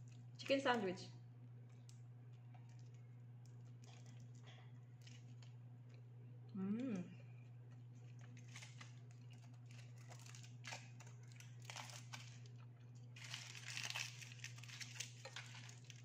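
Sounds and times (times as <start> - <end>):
steady low hum: 0.0 - 16.0
aluminium foil crinkling: 1.7 - 5.6, 7.7 - 16.0
person chewing: 1.7 - 6.0.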